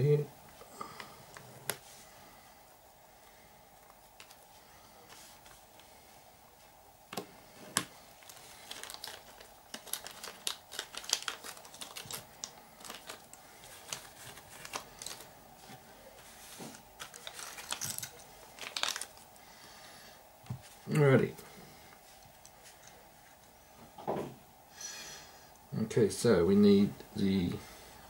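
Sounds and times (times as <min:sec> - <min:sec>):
plastic bag crinkling: 0:07.5 - 0:19.4.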